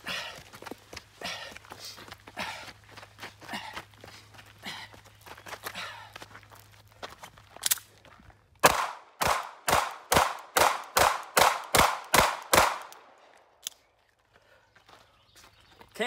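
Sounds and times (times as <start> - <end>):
pistol shots: 8.6 - 13.2.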